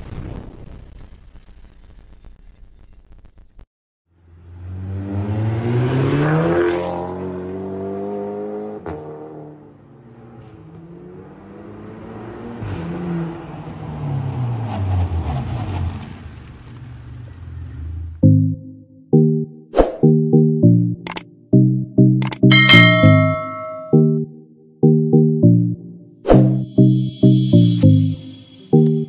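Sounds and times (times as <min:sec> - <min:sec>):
car engine accelerating hard: 0:04.2 - 0:18.2.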